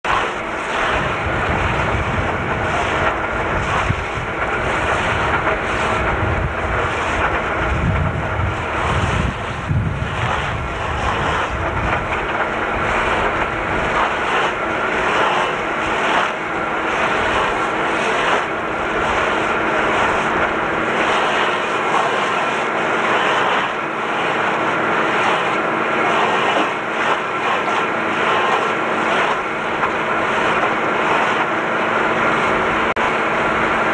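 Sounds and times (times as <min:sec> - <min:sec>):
deep rumble: 0:00.0 - 0:26.9
tractor diesel engine running: 0:00.0 - 0:33.9
stump grinder chewing wood: 0:00.1 - 0:32.8.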